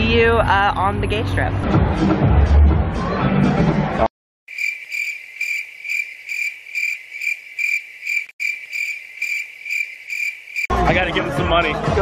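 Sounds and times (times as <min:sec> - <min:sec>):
cricket chirping: 0:04.5 - 0:10.7.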